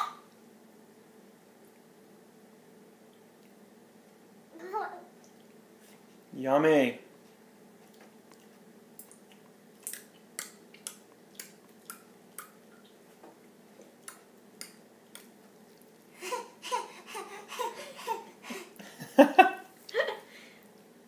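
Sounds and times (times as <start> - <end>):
laughter: 18.8 - 20.3.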